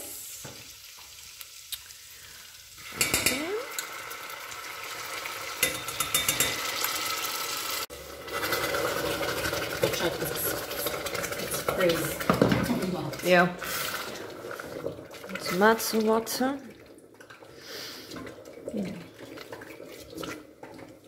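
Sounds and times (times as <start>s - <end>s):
tomato paste sizzling in hot oil: 0.0s - 16.4s
hot water pouring: 0.0s - 21.0s
spoon scraping a pot: 5.6s - 7.0s.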